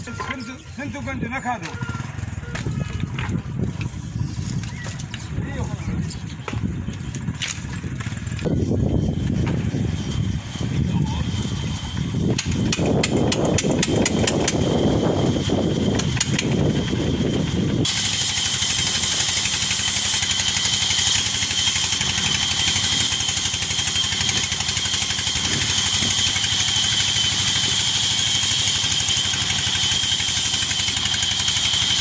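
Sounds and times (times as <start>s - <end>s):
stationary engine running: 0.0s - 3.8s, 6.6s - 32.0s
band saw whining through log: 7.2s - 32.0s.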